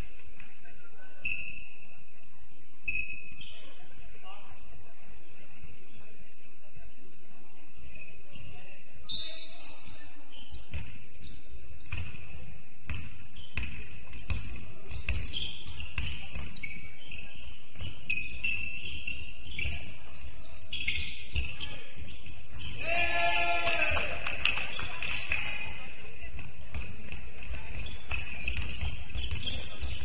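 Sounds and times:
shoe squeaks: 1.0 - 2.0, 2.8 - 4.0, 8.0 - 12.2, 13.2 - 22.9, 27.5 - 30.0
basketball bouncing on floor: 12.9 - 16.6, 26.4 - 30.0.

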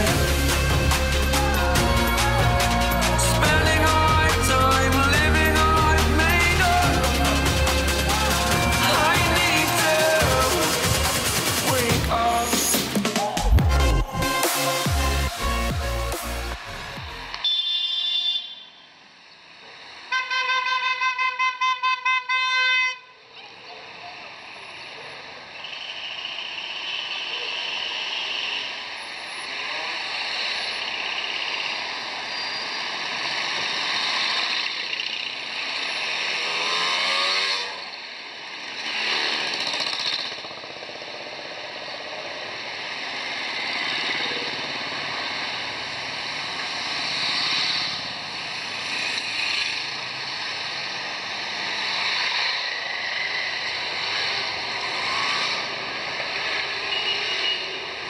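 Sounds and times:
motorcycles riding past: 0.0 - 12.3, 25.2 - 58.0
motorcycle engine revving up: 0.0 - 12.9, 25.6 - 58.0.

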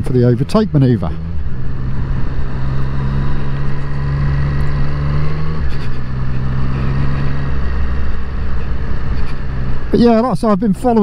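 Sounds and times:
motorcycle engine pulling hard: 0.0 - 10.2.

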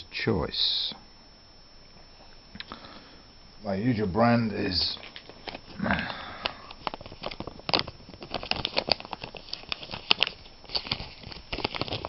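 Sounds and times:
cellophane crinkling: 4.8 - 12.0.

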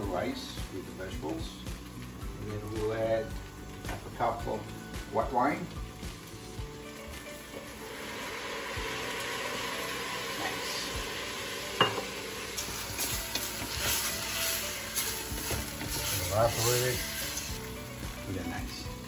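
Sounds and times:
wine sizzling in a hot pot: 0.0 - 19.0
wooden spoon scraping rice: 13.0 - 17.5.

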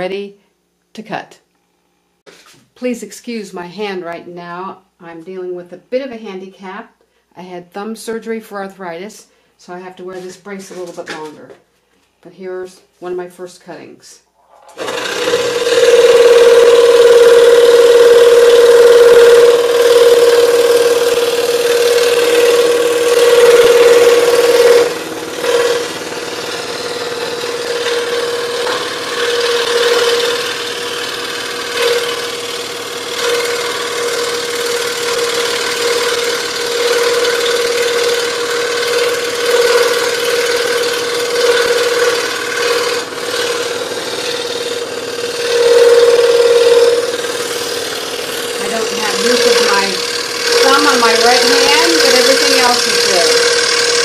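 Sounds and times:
scroll saw cutting plywood: 14.6 - 54.0.

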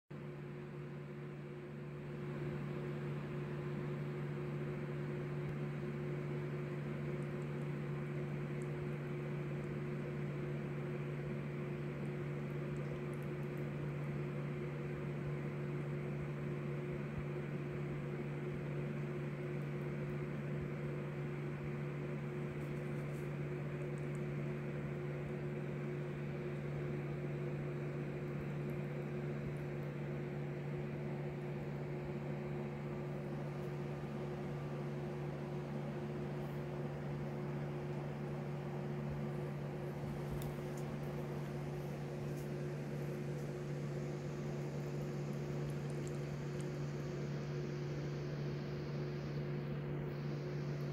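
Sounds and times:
machine hum with low drone: 0.2 - 50.9.

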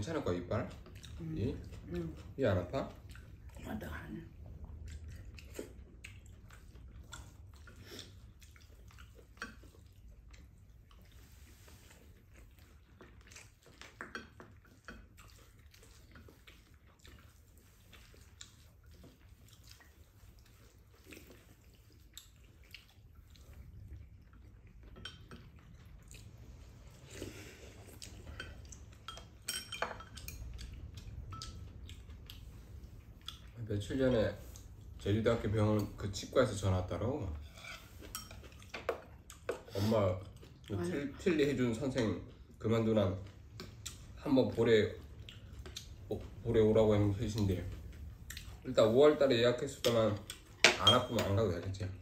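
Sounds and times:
low steady hum: 0.0 - 52.0
utensils clinking on ceramic bowls: 28.3 - 30.7, 49.8 - 51.4.

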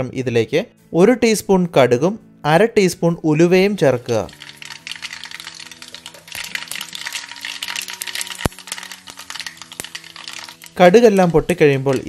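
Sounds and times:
soft background music: 0.0 - 12.0
seeds sizzling in hot oil: 3.9 - 12.0.

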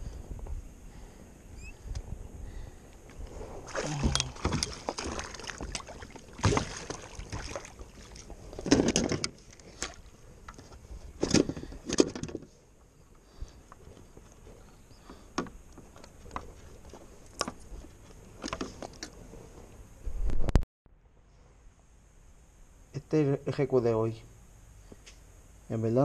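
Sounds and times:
water splashing beside kayak: 3.3 - 10.2.

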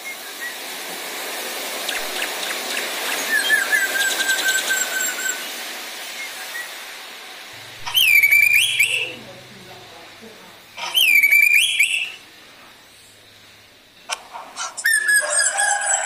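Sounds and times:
bird whistling: 1.9 - 5.5, 7.8 - 9.2, 10.8 - 12.2, 14.6 - 16.0
drongo clicks and chatter: 14.1 - 14.8.

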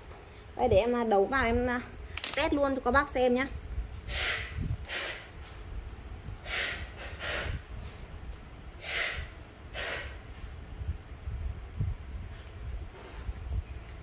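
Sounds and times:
man breathing through nose: 4.1 - 5.3, 6.4 - 8.0, 8.8 - 10.2.

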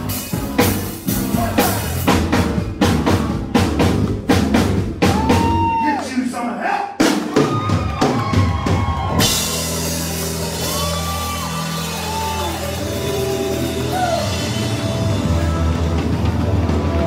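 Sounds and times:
live rock band playing: 0.0 - 5.8, 7.0 - 17.0.

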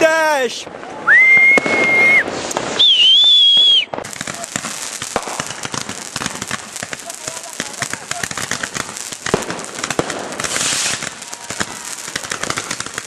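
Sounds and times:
fireworks crackling: 0.0 - 13.0
man whistling: 1.1 - 2.2, 2.8 - 3.9.

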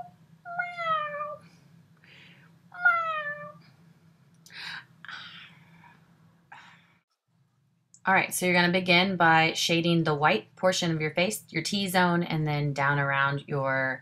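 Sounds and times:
woman imitating cat meows: 0.0 - 1.4, 2.8 - 3.6.

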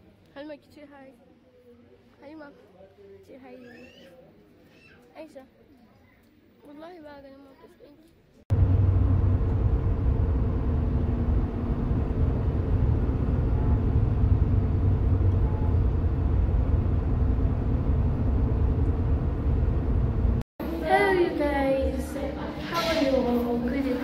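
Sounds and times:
car engine and tyre rumble: 8.5 - 20.4.

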